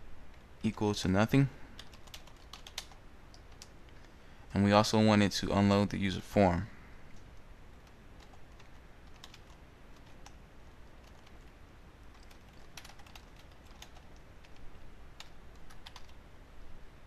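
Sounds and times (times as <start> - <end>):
keyboard keystrokes: 1.8 - 3.7, 7.8 - 10.4, 12.1 - 14.6, 15.2 - 16.2.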